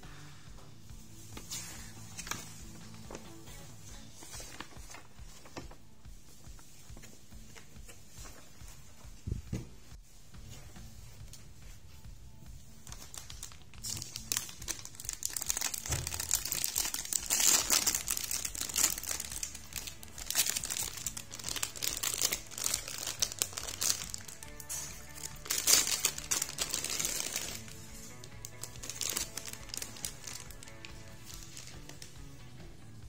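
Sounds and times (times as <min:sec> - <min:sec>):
plastic bag crinkling: 0:12.8 - 0:32.2.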